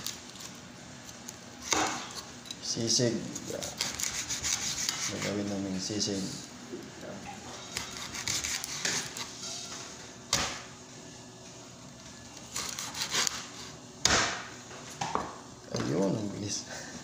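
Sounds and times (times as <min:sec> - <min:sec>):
knife blade scraping: 0:03.3 - 0:05.5, 0:07.5 - 0:09.3
knife slicing meat on board: 0:03.5 - 0:05.6, 0:07.6 - 0:09.3, 0:12.5 - 0:13.6.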